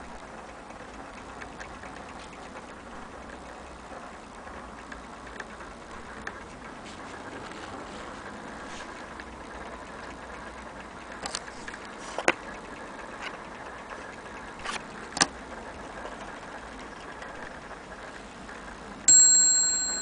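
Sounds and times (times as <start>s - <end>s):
clock ticking faintly: 0.0s - 6.8s
steady background noise: 0.0s - 20.0s.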